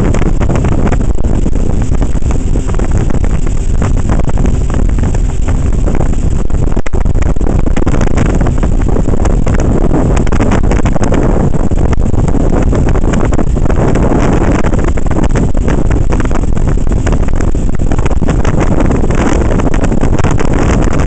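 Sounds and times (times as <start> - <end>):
boat engine: 0.0 - 21.0
rushing boat wake: 0.0 - 21.0
wind buffeting microphone: 0.0 - 21.0.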